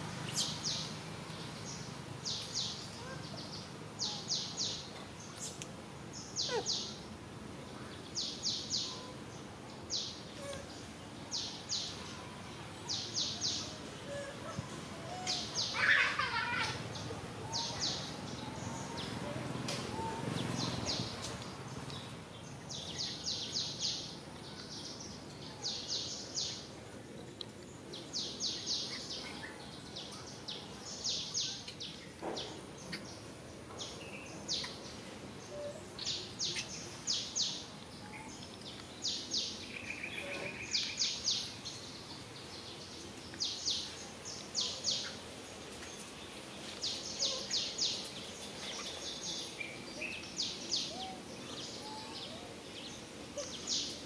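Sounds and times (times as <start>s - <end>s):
outdoor background noise: 0.0s - 54.0s.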